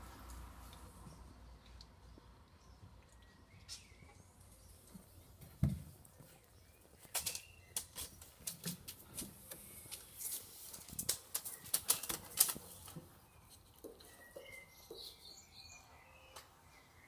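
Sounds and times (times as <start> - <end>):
puppy claws scratching and rustling: 6.0 - 14.3.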